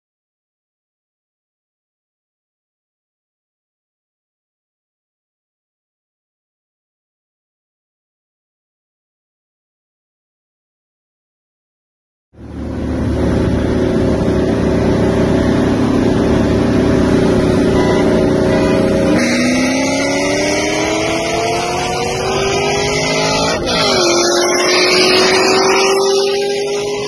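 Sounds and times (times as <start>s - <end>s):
car engine at full throttle: 12.4s - 27.0s.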